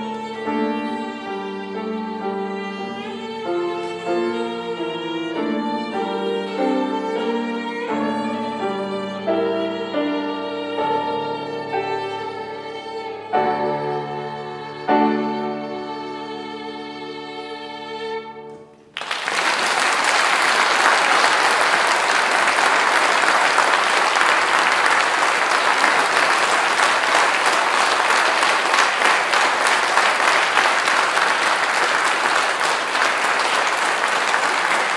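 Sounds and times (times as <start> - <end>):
violin and piano note: 0.0 - 18.9
audience applause: 18.9 - 34.9.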